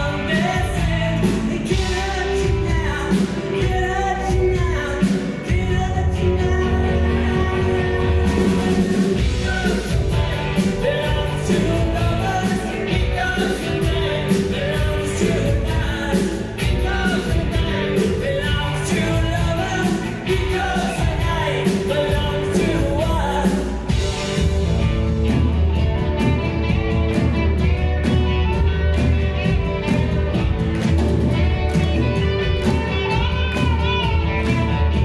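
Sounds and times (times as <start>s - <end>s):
person singing lead vocal: 0.0s - 24.5s
bass guitar: 0.0s - 35.0s
drum kit with cymbals: 0.0s - 35.0s
guitars: 0.0s - 35.0s.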